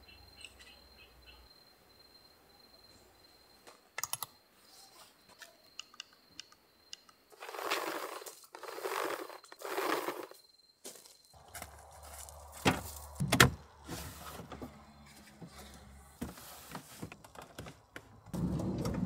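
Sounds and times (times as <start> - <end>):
rustling: 7.4 - 10.4.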